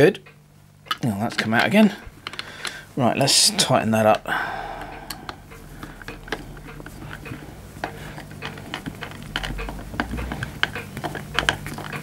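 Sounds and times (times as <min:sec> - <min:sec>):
screwdriver clicks and metal taps: 0:00.9 - 0:02.8.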